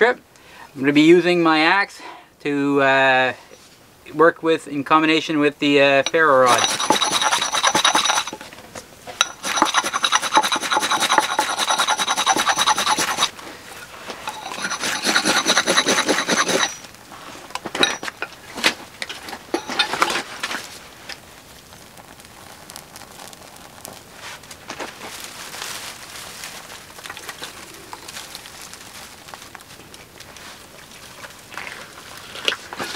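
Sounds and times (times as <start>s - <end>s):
axe scraping ferrocerium rod: 6.1s - 8.4s, 9.2s - 13.3s, 14.1s - 16.9s.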